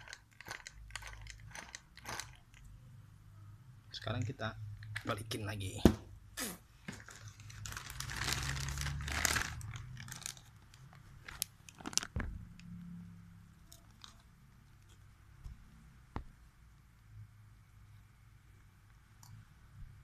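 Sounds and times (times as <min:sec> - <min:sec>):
crinkling and rustling: 0:06.8 - 0:12.6, 0:13.7 - 0:15.6.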